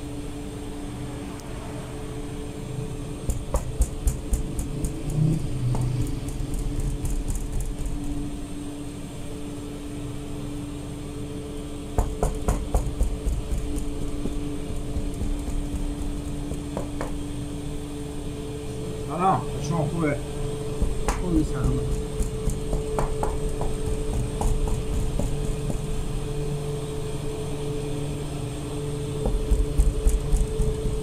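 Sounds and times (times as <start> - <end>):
bakery machinery hum: 0.0 - 31.0
dough scraper clicks and taps: 3.3 - 8.1.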